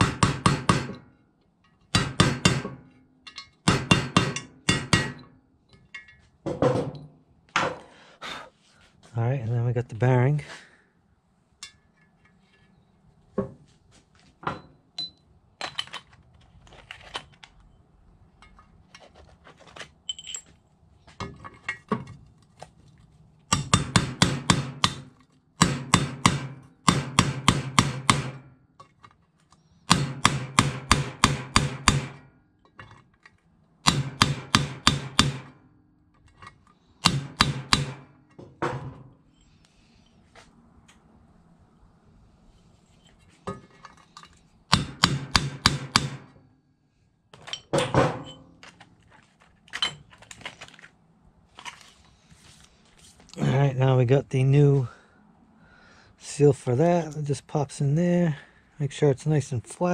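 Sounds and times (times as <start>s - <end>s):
hammer tapping a metal driver: 1.9s - 5.3s
light clicks of handling parts: 28.8s - 29.8s, 42.5s - 44.6s.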